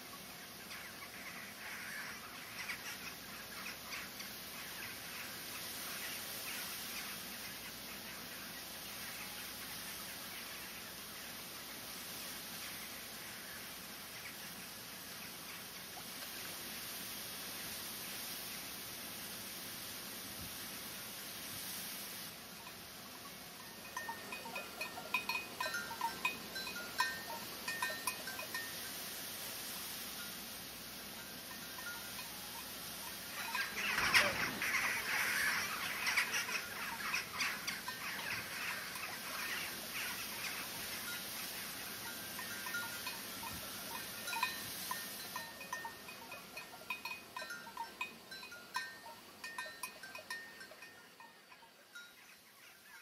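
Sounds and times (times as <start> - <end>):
steady hiss: 0.0 - 53.0
bells clinking: 22.6 - 29.0, 31.2 - 39.7, 40.5 - 52.9.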